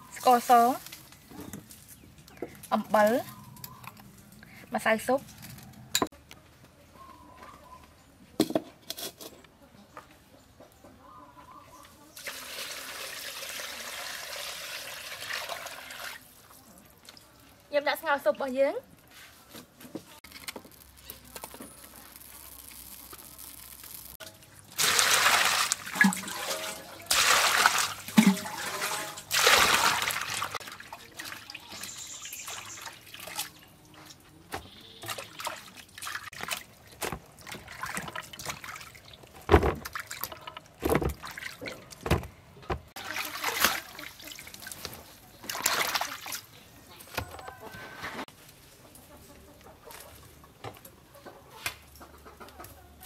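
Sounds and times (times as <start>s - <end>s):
water splashing in a steel bowl: 12.2s - 17.6s, 22.2s - 34.2s, 34.9s - 41.9s, 43.0s - 46.5s.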